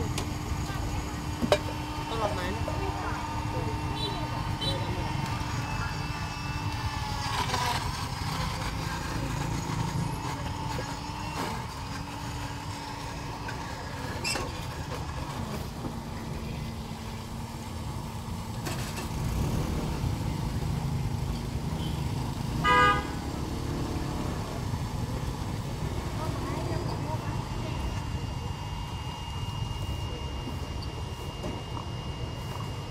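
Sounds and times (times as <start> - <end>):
street traffic rumble: 0.0 - 32.9
vehicle horn tooting: 21.8 - 23.3.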